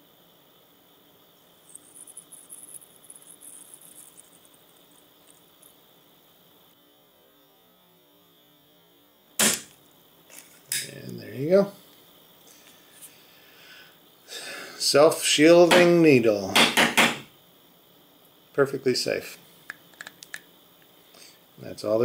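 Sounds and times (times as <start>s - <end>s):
faint high-pitched crackling: 1.2s - 6.8s
autoinjector firing click: 9.4s - 9.8s.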